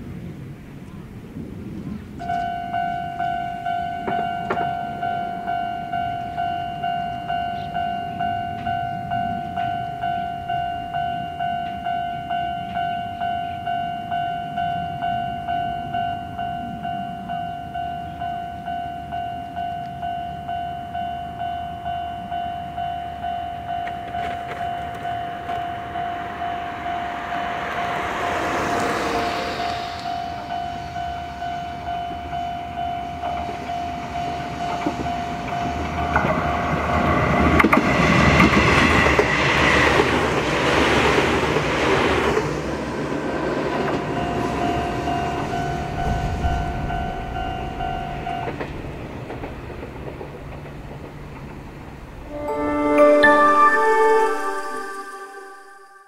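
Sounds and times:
electric train passing: 0:00.0 - 0:56.0
level crossing bell ringing: 0:02.4 - 0:35.8, 0:52.3 - 0:56.0.

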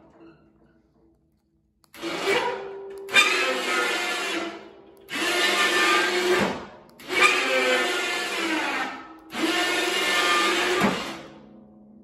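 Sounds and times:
electric winch motor whining: 0:02.0 - 0:11.3.

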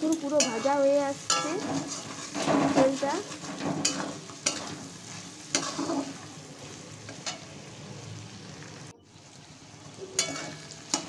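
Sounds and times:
vegetables sizzling in oil: 0:00.0 - 0:11.0
metal spatula scraping pan: 0:00.4 - 0:06.4, 0:10.2 - 0:11.0.

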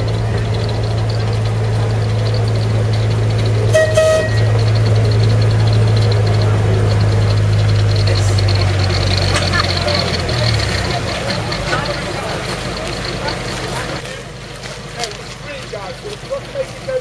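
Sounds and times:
diesel locomotive engine: 0:00.0 - 0:17.0
train horn toot: 0:03.7 - 0:04.7.

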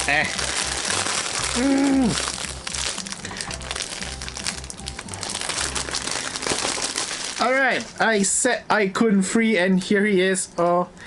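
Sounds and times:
plastic wrapping crinkling: 0:00.0 - 0:08.3
person humming: 0:01.3 - 0:02.4.

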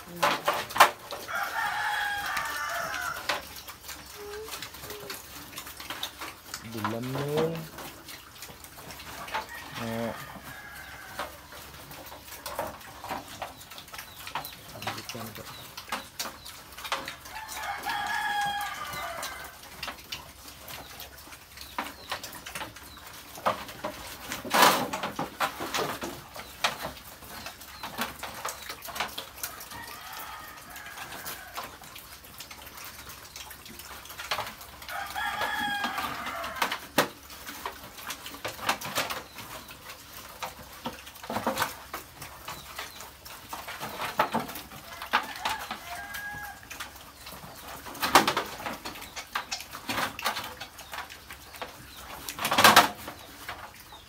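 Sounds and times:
piglets feeding clicks and knocks: 0:00.0 - 0:54.0
rooster crowing: 0:01.2 - 0:03.3, 0:17.3 - 0:19.6, 0:29.6 - 0:31.6, 0:34.9 - 0:36.7, 0:45.0 - 0:46.7.

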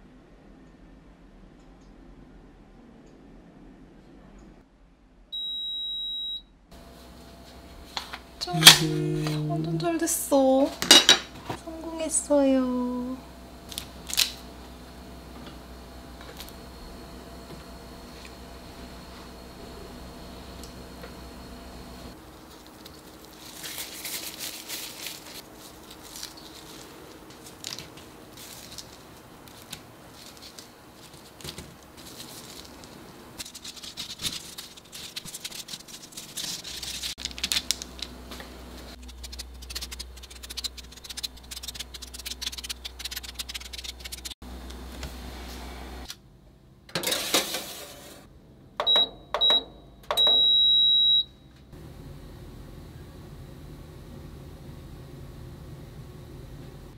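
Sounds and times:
oven control panel beeps: 0:05.4 - 0:06.5, 0:48.8 - 0:51.5
plastic gloves rustling: 0:22.2 - 0:44.4.

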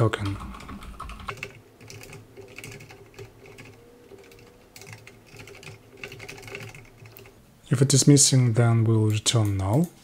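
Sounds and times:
keyboard typing clicks: 0:00.0 - 0:07.4.

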